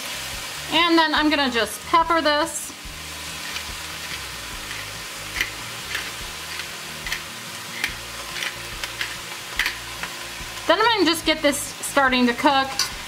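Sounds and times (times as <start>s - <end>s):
food sizzling in frying pan: 0.0s - 13.0s
pepper grinder crunching clicks: 3.4s - 10.2s.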